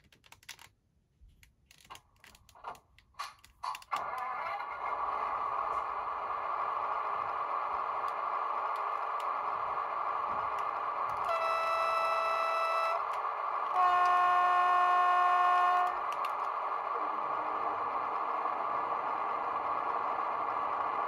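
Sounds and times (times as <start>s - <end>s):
diesel railcar running sound: 1.7s - 21.0s
horn blasts: 11.1s - 16.2s.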